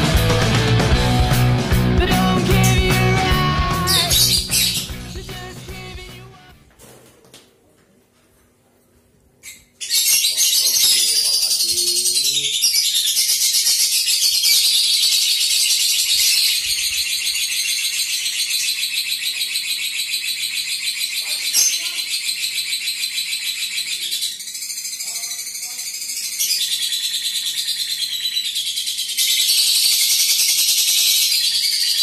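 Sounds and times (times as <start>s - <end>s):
lovebird chattering trill: 2.1s - 6.5s.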